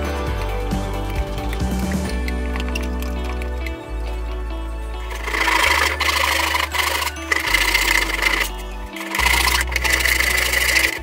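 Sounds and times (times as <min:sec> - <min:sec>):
background music: 0:00.0 - 0:11.0
saw cutting wood: 0:05.1 - 0:11.0.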